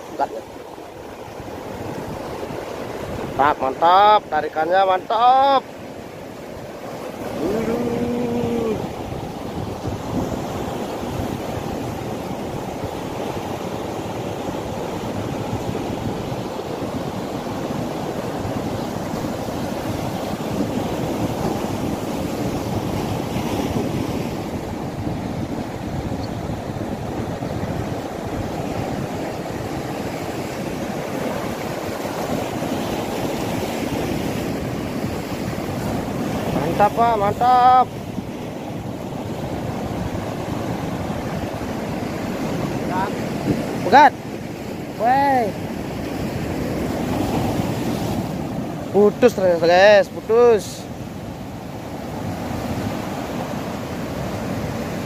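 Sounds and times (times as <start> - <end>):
wind buffeting microphone: 6.2 - 49.3.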